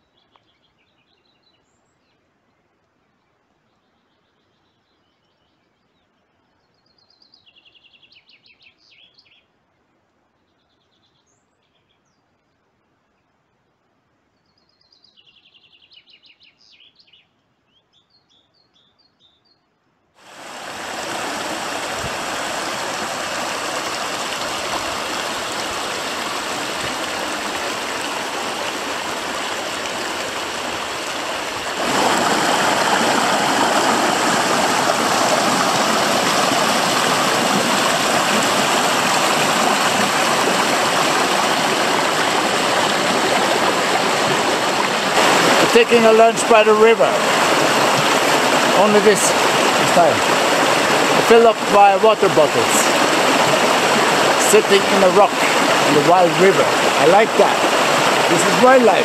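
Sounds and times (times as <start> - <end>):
river rushing over rocks: 20.2 - 59.0.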